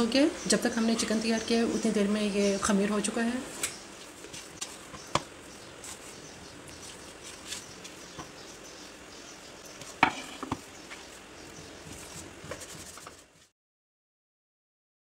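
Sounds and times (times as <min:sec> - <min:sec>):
hands handling dough in bowl: 0:04.0 - 0:08.4, 0:11.8 - 0:13.5.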